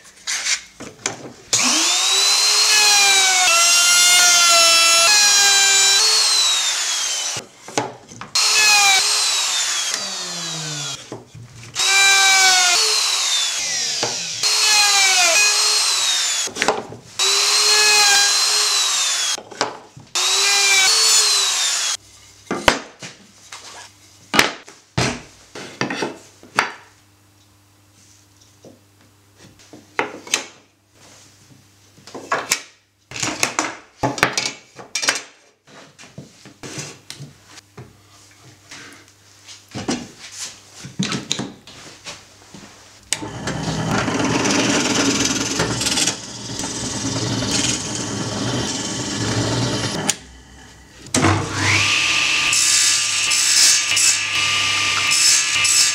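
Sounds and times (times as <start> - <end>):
handheld power tool: 1.5 - 7.5, 8.3 - 11.1, 11.7 - 16.6, 17.2 - 19.4, 20.1 - 22.0, 43.1 - 55.9
drill press boring into wood: 1.6 - 7.4, 8.4 - 11.0, 11.8 - 16.5, 17.2 - 19.4, 20.2 - 22.0, 43.1 - 55.9.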